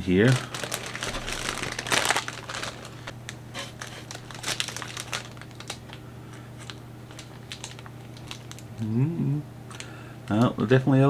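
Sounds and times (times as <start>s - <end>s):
plastic bags crinkling: 0.0s - 8.8s.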